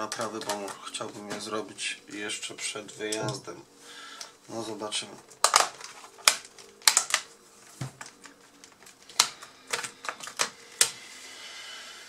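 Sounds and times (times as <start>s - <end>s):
plastic parts clicking and knocking: 0.0s - 1.6s, 5.3s - 11.0s.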